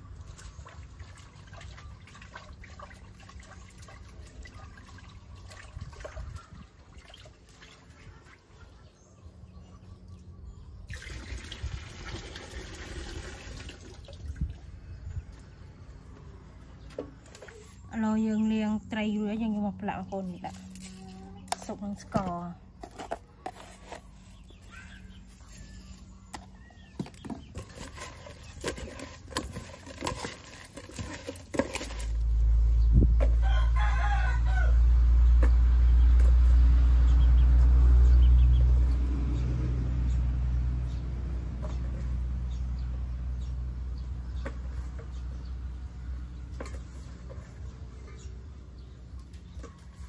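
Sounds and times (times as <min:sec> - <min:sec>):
rooster crowing: 0:33.2 - 0:35.1.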